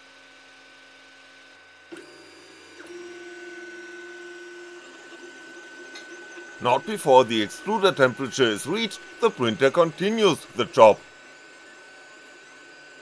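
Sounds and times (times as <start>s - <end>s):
printer fans high tone: 0.1s - 13.0s
stepper motor whine: 1.0s - 13.0s.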